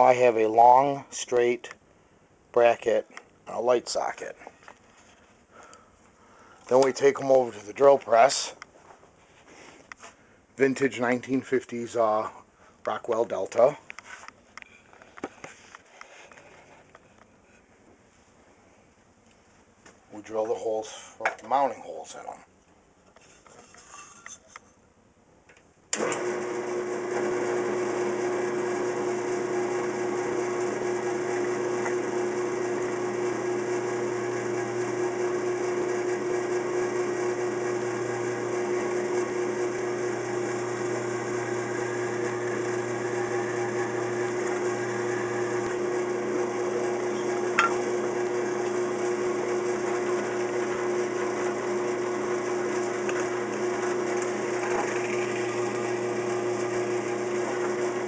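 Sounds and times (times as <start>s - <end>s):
drill press humming: 26.0s - 58.0s.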